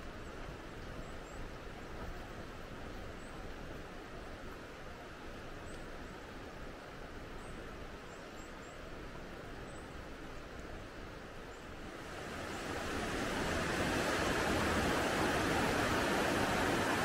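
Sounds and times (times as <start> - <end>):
steady rushing ambience: 11.9 - 17.0.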